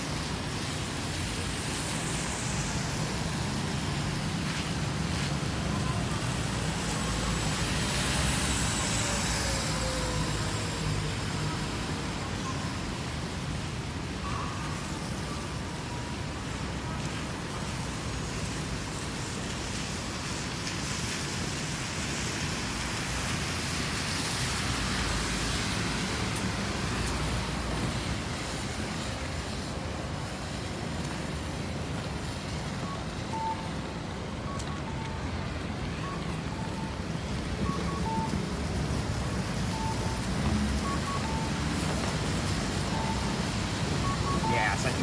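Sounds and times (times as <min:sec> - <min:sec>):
cars passing: 0:00.0 - 0:45.0
two-pitch electronic beep: 0:32.7 - 0:45.0.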